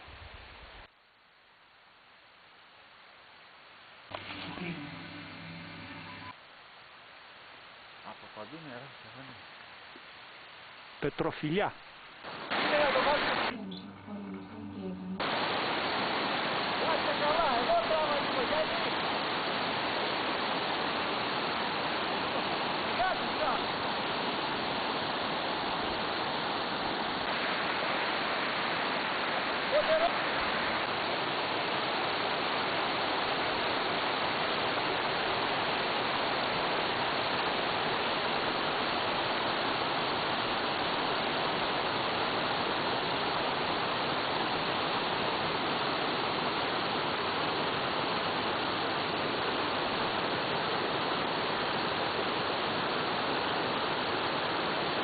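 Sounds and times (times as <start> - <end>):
stream rushing over rocks: 12.1 - 13.5, 15.2 - 55.0.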